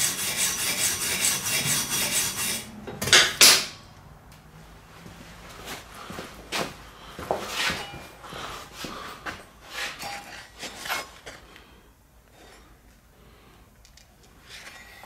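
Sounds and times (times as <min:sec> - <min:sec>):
steel plate scraping: 0:00.0 - 0:03.4, 0:09.7 - 0:11.2, 0:14.4 - 0:15.0.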